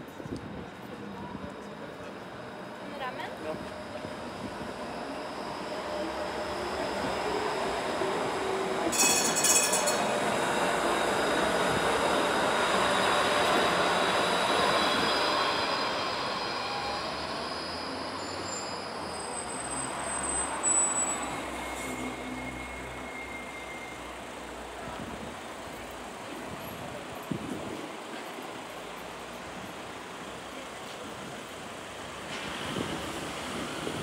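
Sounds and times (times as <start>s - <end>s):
tram rumbling on rails: 0.0s - 34.0s
wheels squealing: 3.8s - 24.3s.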